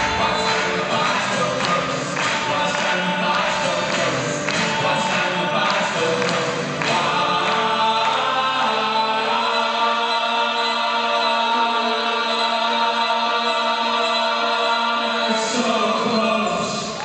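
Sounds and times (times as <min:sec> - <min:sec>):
percussion hits: 0:00.0 - 0:08.0
choir singing: 0:00.0 - 0:17.0.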